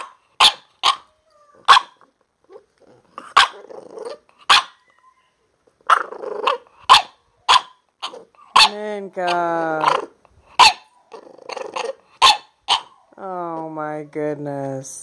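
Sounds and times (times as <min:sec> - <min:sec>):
puppy barking: 0:00.0 - 0:02.1, 0:03.2 - 0:04.9, 0:05.8 - 0:08.8, 0:09.8 - 0:13.1
puppy growling: 0:00.8 - 0:07.2, 0:08.0 - 0:13.6.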